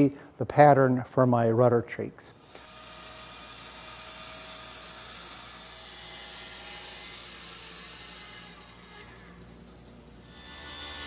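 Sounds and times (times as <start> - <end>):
bandsaw cutting wood: 2.4 - 11.0.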